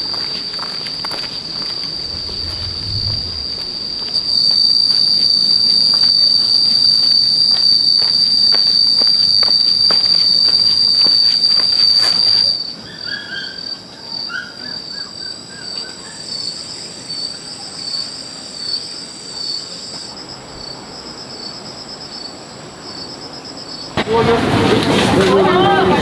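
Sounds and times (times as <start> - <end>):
short insect chirps: 0.0 - 12.7
insects buzzing: 0.0 - 12.8
pulsing high insect trill: 0.0 - 22.4.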